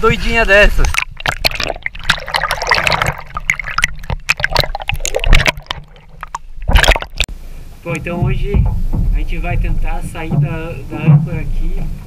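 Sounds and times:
sea water splashing and gurgling: 0:00.6 - 0:07.3
water popping against microphone: 0:00.7 - 0:07.3.

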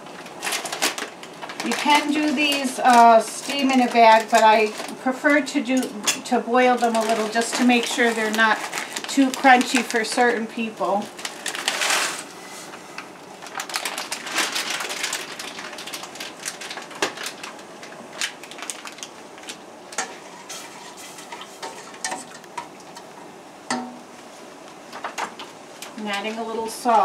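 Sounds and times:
frozen vegetables poured into water: 0:06.6 - 0:12.3, 0:13.4 - 0:19.6
spoon scraping a metal pot: 0:20.0 - 0:22.4.

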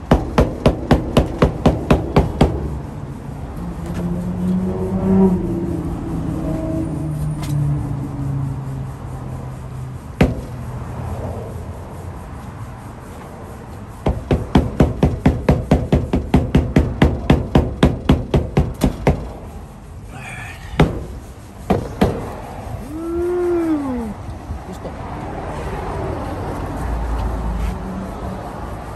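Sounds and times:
palm thumping on windshield glass: 0:10.2 - 0:10.6, 0:14.0 - 0:19.3, 0:20.8 - 0:21.1, 0:21.7 - 0:22.3.

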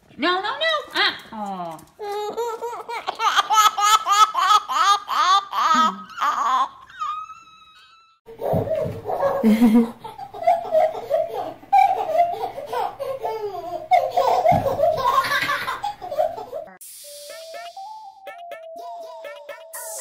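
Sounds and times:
baby giggling: 0:02.0 - 0:16.8, 0:18.8 - 0:19.8.

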